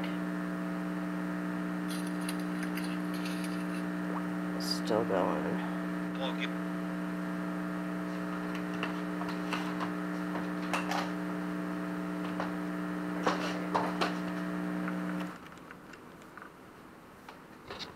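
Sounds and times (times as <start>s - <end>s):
speaker electrical hum: 0.0s - 17.9s
faint clicks and crackles: 13.2s - 16.6s.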